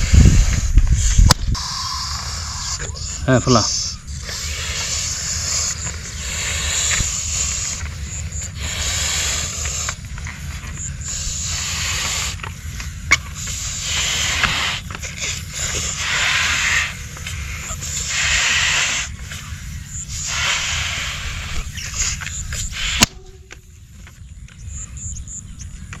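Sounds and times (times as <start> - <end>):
breath blowing into balloons: 0.0 - 2.9, 4.1 - 10.0, 13.4 - 19.5, 20.1 - 23.2.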